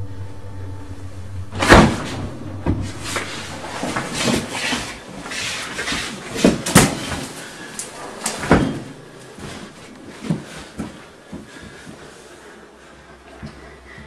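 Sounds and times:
rustling: 1.5 - 12.6.

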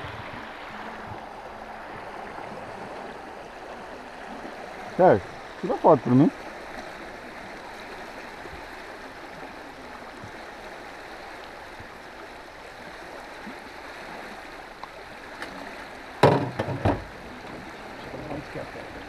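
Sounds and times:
river water rushing past hull: 0.0 - 19.0
loud thump: 16.2 - 17.1.

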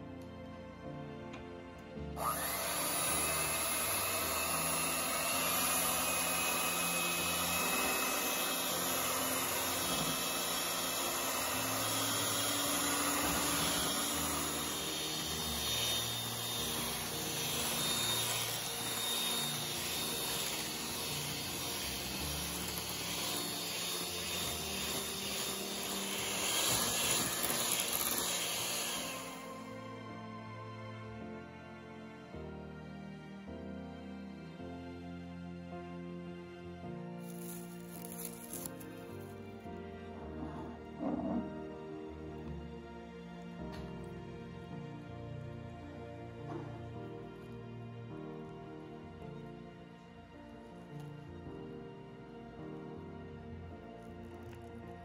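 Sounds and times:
background music: 0.0 - 55.0
electric hand mixer whipping: 2.2 - 29.8, 37.2 - 39.3, 40.2 - 41.6.

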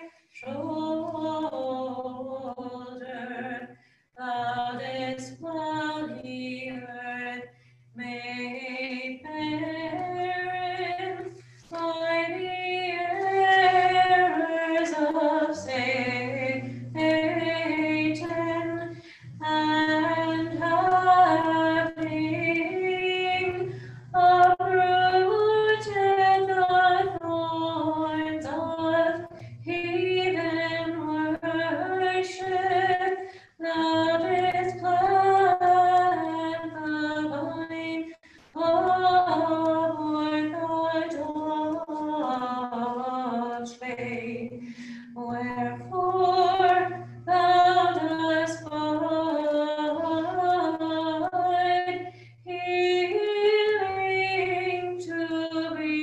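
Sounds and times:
voices singing liturgical chant: 8.1 - 37.5.

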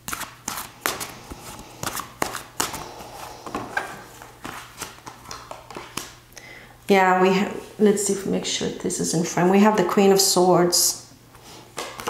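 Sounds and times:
cards flicking and tapping: 3.5 - 6.2.

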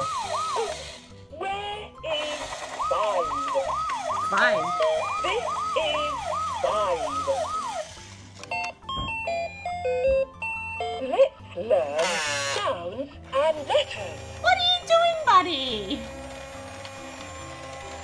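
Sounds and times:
warbling siren-like toy sound: 0.0 - 1.1, 2.2 - 8.0.

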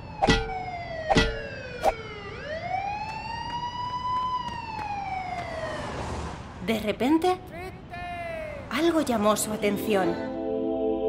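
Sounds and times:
siren wailing: 0.0 - 6.4
sharp knock: 0.2 - 1.5.

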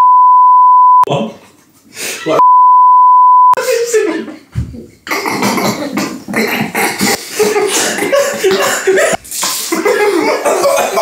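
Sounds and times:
men stifling laughter: 5.5 - 11.0.

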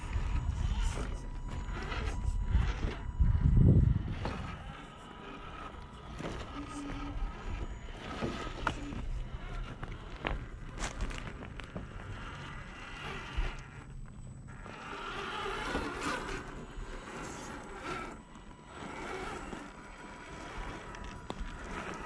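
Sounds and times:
wind on microphone: 0.0 - 4.8
electric motor and gears whirring: 0.0 - 22.0
tyres crunching on stones: 0.0 - 22.0.

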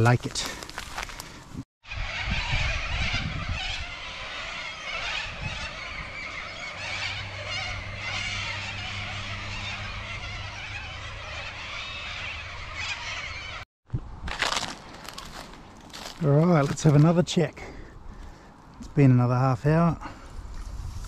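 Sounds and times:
flock of birds calling: 1.9 - 13.6.

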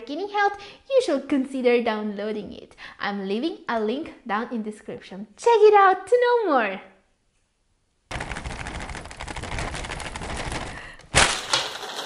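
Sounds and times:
paper bag crackling: 8.1 - 12.0.

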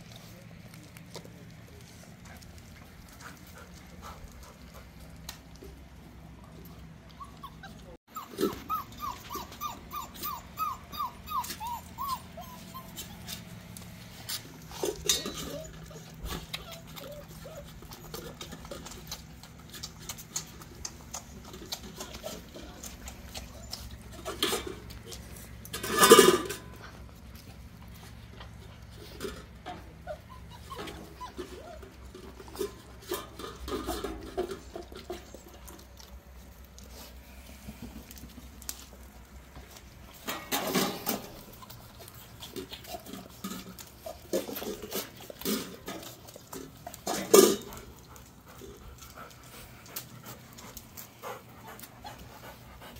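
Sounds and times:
puppies whining: 6.5 - 36.2
puppy crying loudly: 7.2 - 13.4
clicks at metal feeding bowls: 24.1 - 26.8, 42.5 - 48.0.

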